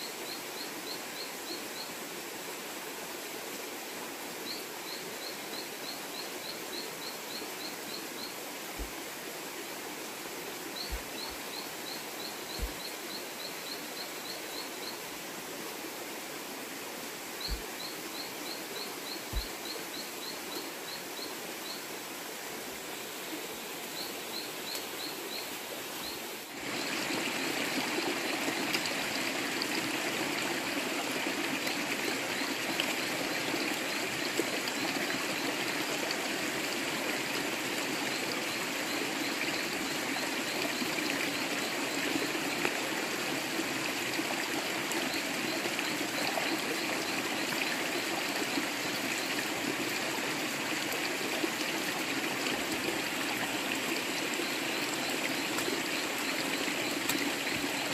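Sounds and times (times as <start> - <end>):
stream running over rocks: 0.0 - 57.9.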